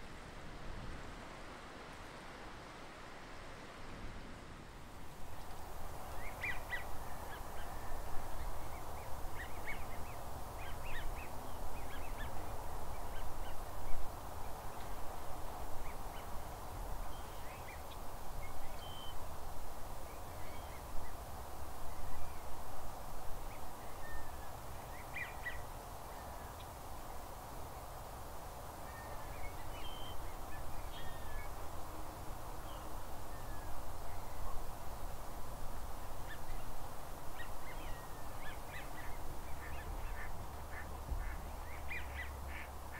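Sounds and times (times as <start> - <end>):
din of many birds: 5.3 - 15.0, 36.1 - 42.9.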